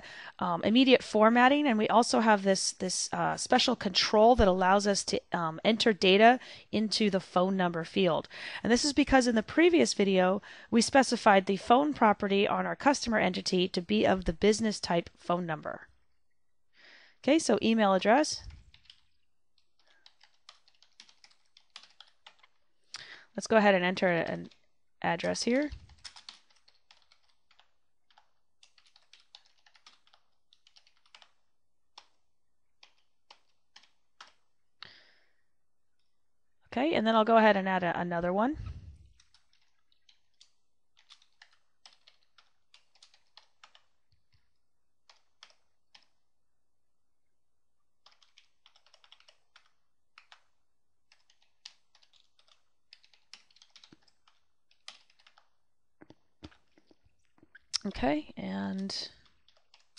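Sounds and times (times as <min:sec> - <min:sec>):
computer keyboard typing: 0:18.4 - 0:22.6, 0:23.4 - 0:32.2, 0:32.8 - 0:34.5, 0:39.1 - 0:44.4, 0:45.0 - 0:46.2, 0:48.0 - 0:58.0, 0:58.8 - 0:59.9.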